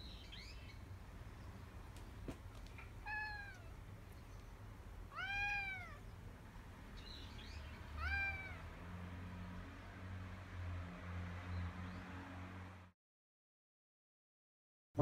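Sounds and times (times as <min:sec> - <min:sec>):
cat meowing: 0:02.9 - 0:03.8, 0:05.1 - 0:06.0, 0:08.0 - 0:08.7.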